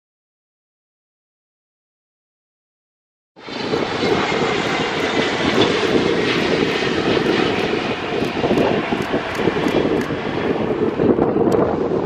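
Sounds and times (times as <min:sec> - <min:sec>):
jet engine rumble with whine: 0:03.4 - 0:12.0.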